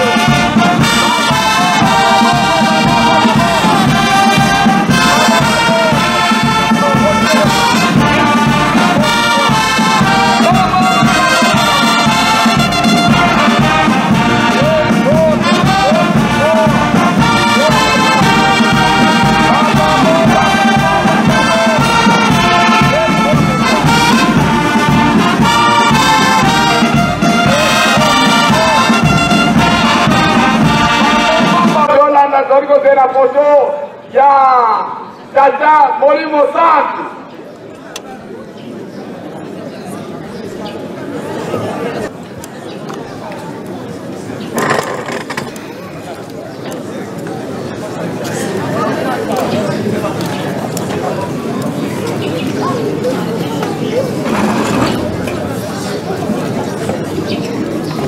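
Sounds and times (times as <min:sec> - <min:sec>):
bass drum beat: 0:00.0 - 0:31.8
brass band playing a melody: 0:00.0 - 0:32.0, 0:54.2 - 0:55.4.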